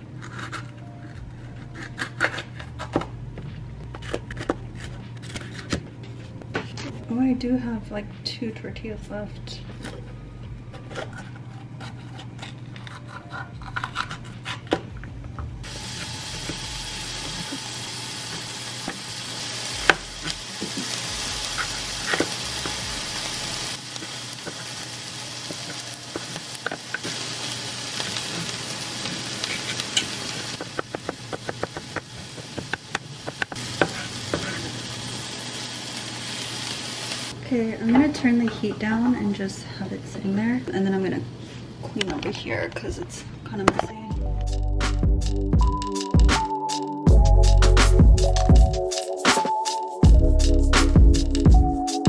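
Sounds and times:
food sizzling in a frying pan: 15.6 - 37.4
knife chopping on plastic board: 30.6 - 34.0.

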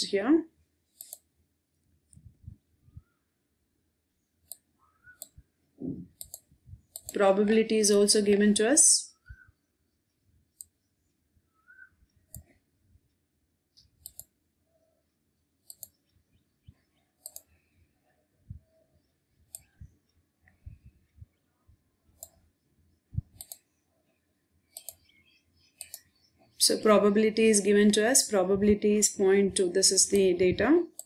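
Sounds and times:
computer mouse clicking: 0.9 - 1.3, 4.4 - 5.4, 6.1 - 7.2, 10.5 - 10.9, 12.3 - 14.4, 15.6 - 16.2, 17.2 - 17.6, 19.5 - 20.6, 22.2 - 22.4, 23.3 - 23.8, 24.7 - 26.1.

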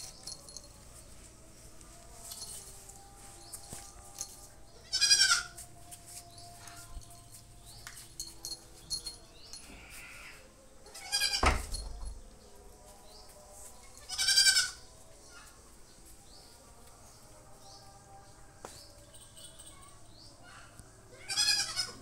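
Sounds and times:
quavering bleat-like animal calls: 4.8 - 5.5, 9.7 - 11.4, 14.0 - 14.8, 21.1 - 22.0.

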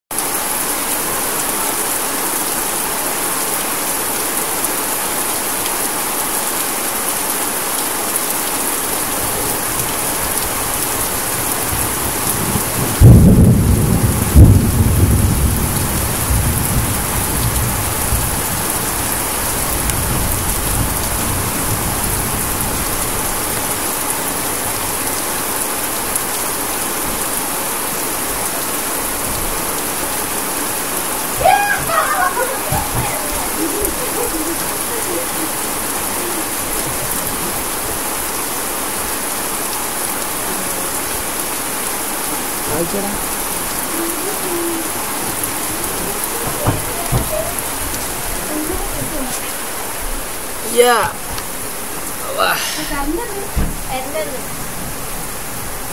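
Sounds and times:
heavy rain on leaves: 0.1 - 55.9
thunder clap rumbling: 9.1 - 23.8, 29.0 - 38.3, 42.6 - 50.5.

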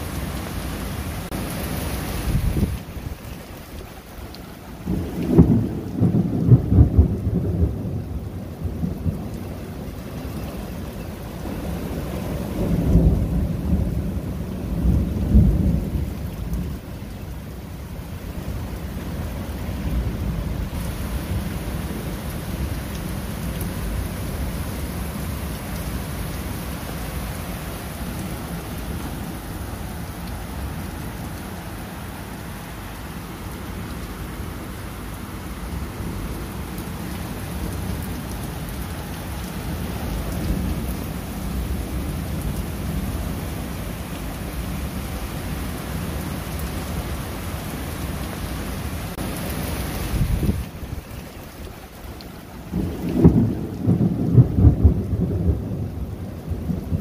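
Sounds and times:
steady rain falling: 0.0 - 57.0
rolling thunder: 4.9 - 9.4, 11.4 - 16.8, 52.7 - 57.0.

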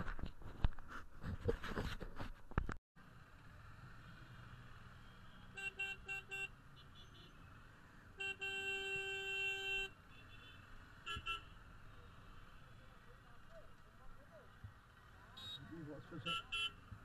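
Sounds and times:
vehicle horn honking: 5.5 - 7.4, 8.2 - 11.6, 15.4 - 16.8.

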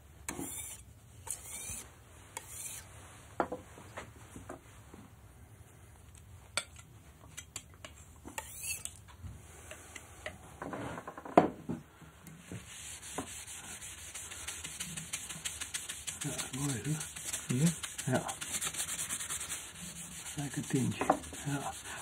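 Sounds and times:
palette knife scraping glass: 8.3 - 9.0.

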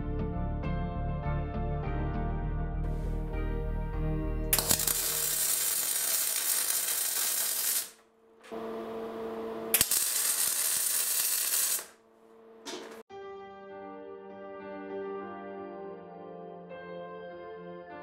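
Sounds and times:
welding arc buzzing: 4.6 - 13.0.

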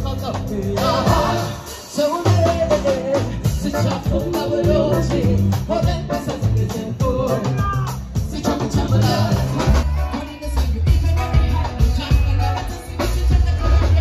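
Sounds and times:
live band music: 0.0 - 14.0
woman singing lead: 6.8 - 14.0.

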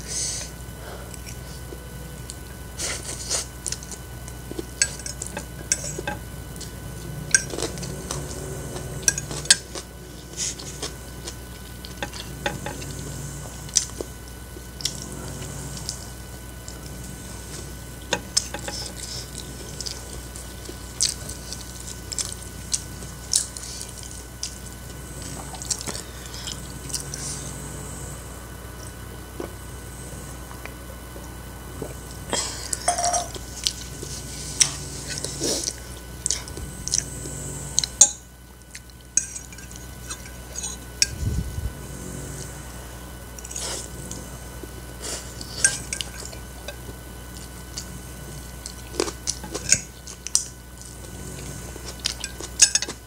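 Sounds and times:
chewing and biting: 1.1 - 27.9, 30.5 - 38.0, 38.6 - 41.4, 43.4 - 53.0
fork scraping a plate: 39.2 - 41.1.

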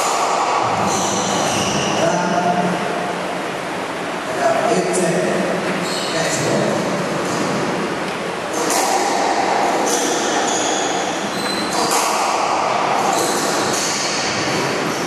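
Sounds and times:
sneakers squeaking on wooden floor: 0.8 - 2.2, 5.6 - 6.4, 9.9 - 12.1.

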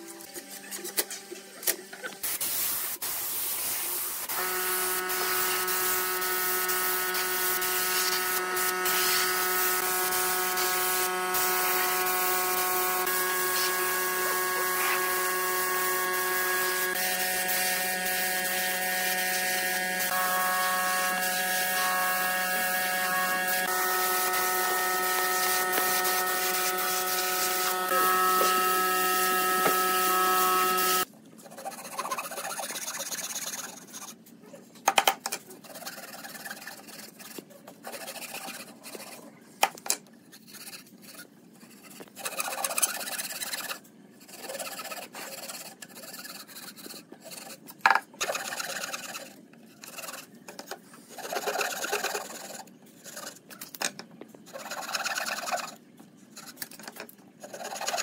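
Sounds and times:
spray gun hissing: 2.3 - 31.0
handsaw cutting wood: 4.3 - 31.0
motor hum: 4.3 - 31.0.

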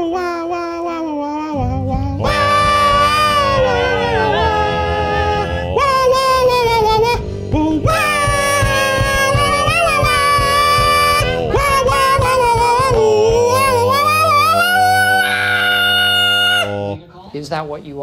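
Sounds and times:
group of people singing long notes: 1.6 - 17.0.

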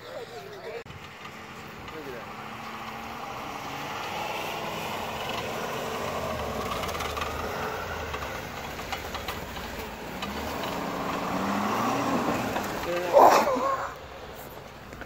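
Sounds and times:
diesel engine pulling under load: 0.0 - 15.0
tyres churning snow: 0.1 - 15.0
clicks and rattles: 8.1 - 10.8.

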